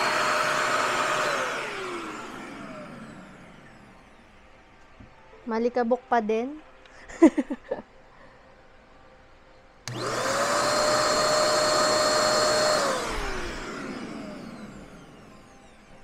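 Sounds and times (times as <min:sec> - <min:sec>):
handheld vacuum cleaner motor whine: 0:00.0 - 0:04.4, 0:09.8 - 0:16.0.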